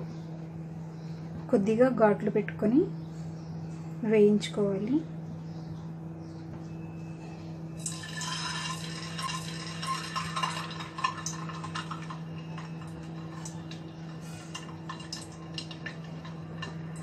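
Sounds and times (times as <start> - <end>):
egg sizzling in hot oil: 7.8 - 17.0.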